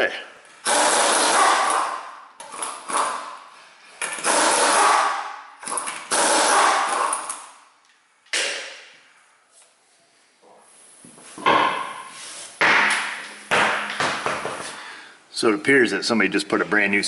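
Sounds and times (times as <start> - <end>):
impact wrench spinning: 0.6 - 3.4, 4.0 - 7.6
sudden knock: 12.6 - 14.6.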